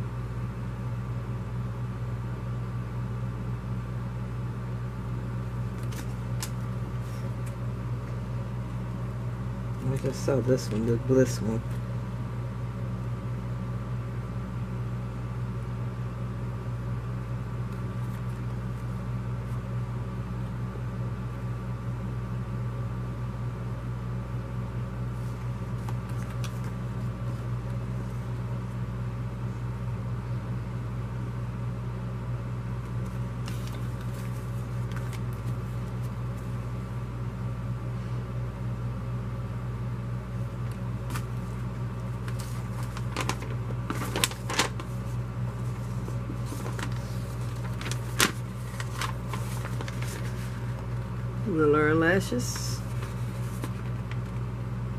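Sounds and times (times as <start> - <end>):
low electrical hum: 0.0 - 54.9
paper rustling: 5.7 - 7.6, 18.0 - 19.0, 25.1 - 28.2, 33.0 - 36.5, 40.6 - 51.3, 52.5 - 54.5.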